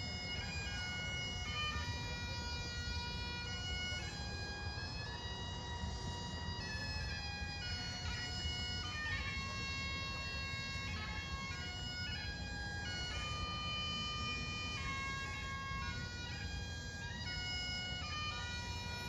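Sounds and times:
bagpipes playing slow tune: 0.0s - 19.0s.

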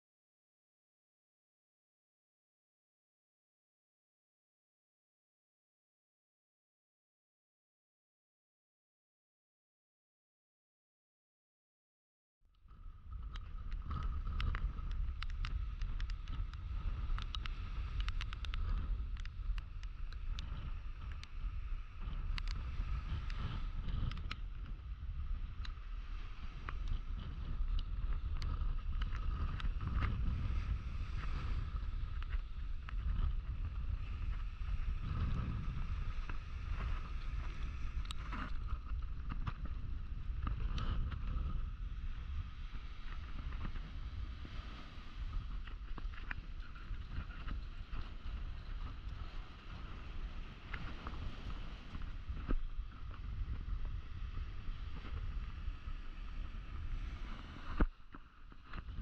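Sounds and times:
wind buffeting microphone: 12.7s - 59.0s
surf breaking on beach: 13.0s - 59.0s.

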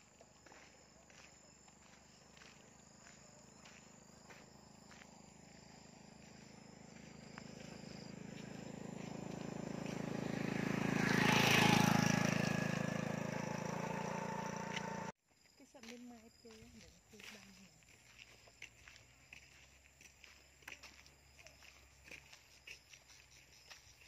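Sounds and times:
motorcycle engine passing: 4.0s - 15.1s.

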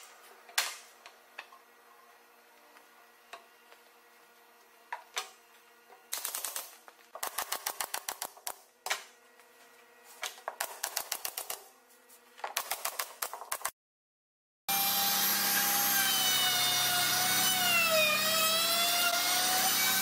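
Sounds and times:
pneumatic nailer firing: 6.1s - 9.1s, 10.6s - 11.7s.

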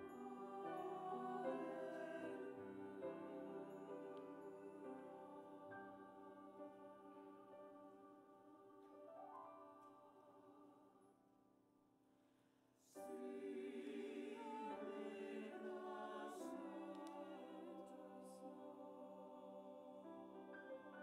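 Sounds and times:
piano accompaniment: 0.0s - 10.5s
church choir singing: 0.0s - 11.2s, 12.8s - 21.0s.

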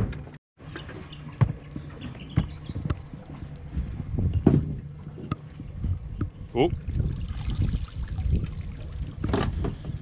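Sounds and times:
low steady rumble: 0.6s - 10.0s.

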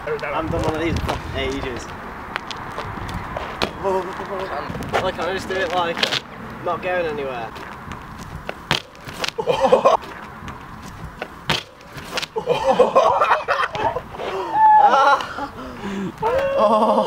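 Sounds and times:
group of people laughing: 9.4s - 10.0s, 12.3s - 17.0s.

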